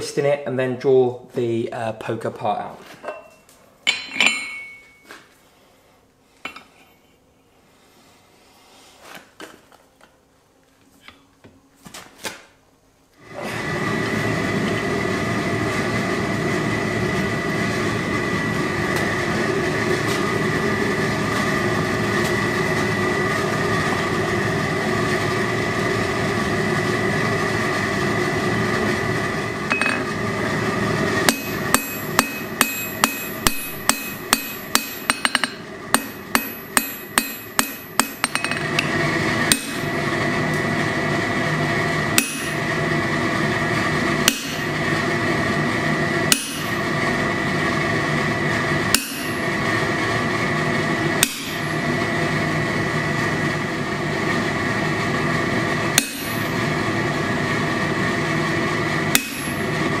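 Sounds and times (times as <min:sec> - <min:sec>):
hammer ringing on anvil: 0:03.1 - 0:05.0, 0:29.7 - 0:30.1, 0:31.3 - 0:38.9, 0:39.5 - 0:39.9, 0:42.2 - 0:42.6, 0:44.3 - 0:44.8, 0:46.3 - 0:46.8, 0:48.9 - 0:49.4, 0:51.2 - 0:51.7, 0:56.0 - 0:56.6, 0:59.1 - 0:59.7
steady hum: 0:12.6 - 1:00.0.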